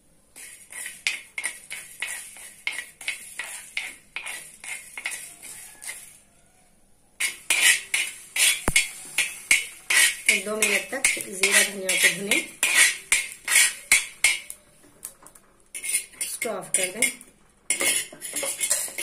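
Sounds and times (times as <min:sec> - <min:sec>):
spatula scraping metal pan: 0:00.4 - 0:06.3, 0:07.2 - 0:14.6, 0:15.7 - 0:19.0.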